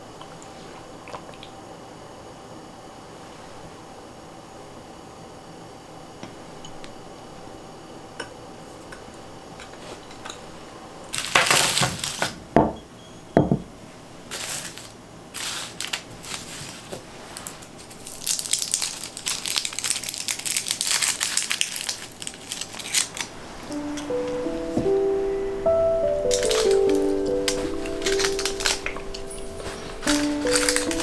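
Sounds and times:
plastic wrappers crinkling: 11.1 - 12.4, 14.3 - 25.1, 25.8 - 31.0
music: 23.7 - 31.0.

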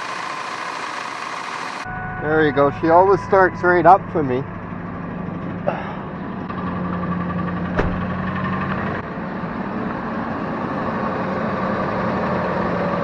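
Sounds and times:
engine idling with rattle: 0.0 - 1.9, 4.4 - 10.4.

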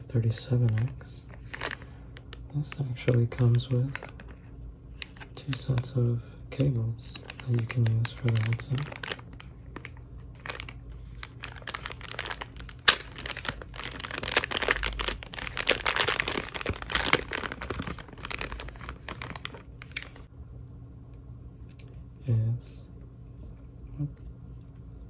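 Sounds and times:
plastic packaging crinkling: 0.0 - 6.0, 6.6 - 20.3.

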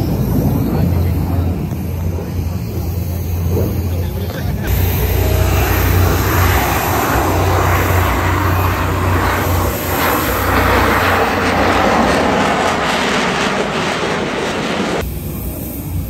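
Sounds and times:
jet engine roar: 0.0 - 16.0.

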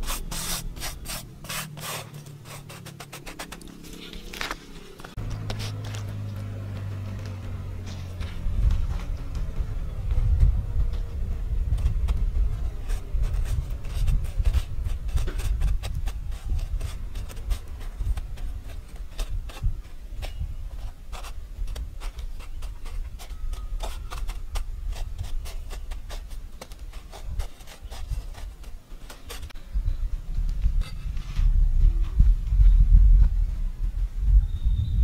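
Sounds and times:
crumbs scraping on metal plate: 0.0 - 6.3
low rumble: 3.9 - 19.8, 29.6 - 35.0.

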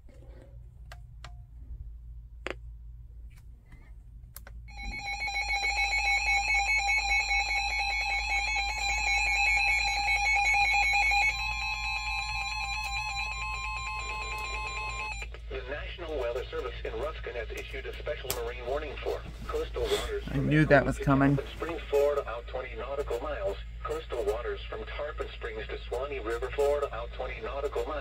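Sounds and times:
electronic alert alarms: 4.7 - 15.2
steady high tone: 4.7 - 15.2.

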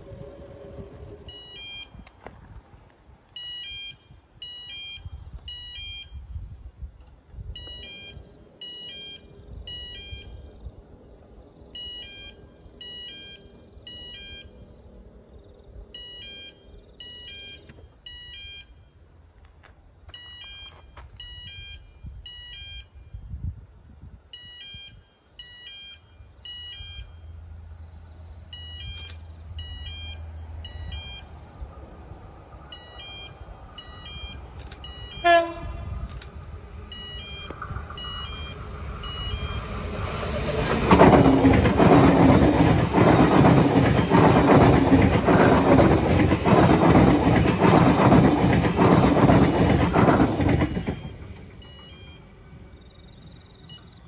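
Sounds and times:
short high-pitched beeps: 1.3 - 2.1, 3.4 - 6.3, 7.6 - 10.5, 11.8 - 14.6, 16.0 - 18.8, 20.1 - 23.2, 24.3 - 27.4, 28.5 - 31.4, 32.8 - 36.3, 36.9 - 39.7, 50.6 - 52.3
train horn blast: 35.1 - 36.0.

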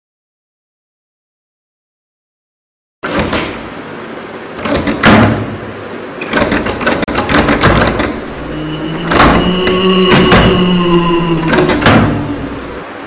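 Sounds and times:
loud knocking and banging: 4.6 - 12.8
rumbling clattering bed: 4.6 - 12.9
steady tones: 7.5 - 13.0.

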